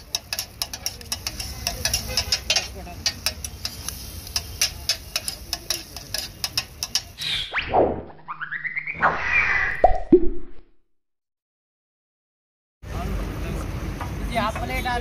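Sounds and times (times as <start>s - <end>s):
faint sizzle: 0.0s - 7.2s
metal spatula clacking on griddle: 0.0s - 7.2s.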